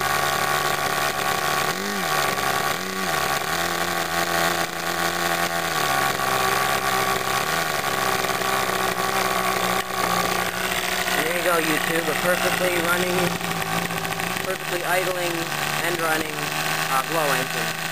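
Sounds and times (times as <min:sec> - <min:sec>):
model airplane engine idling: 0:00.0 - 0:17.9.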